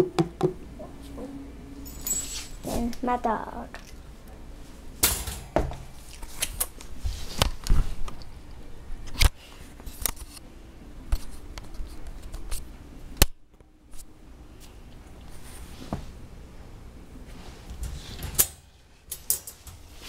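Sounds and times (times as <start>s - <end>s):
metallic clicks on wire crate: 17.9s - 19.8s.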